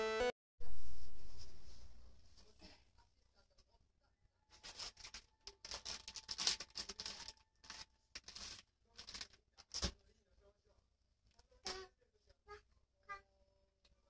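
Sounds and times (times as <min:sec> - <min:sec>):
plastic packaging crinkling: 0:04.6 - 0:09.9.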